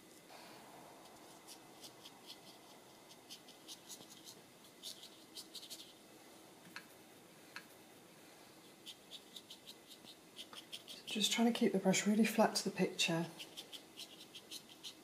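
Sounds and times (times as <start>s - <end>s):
brush scratching on paper: 1.0s - 6.0s, 8.6s - 11.3s, 13.4s - 15.0s.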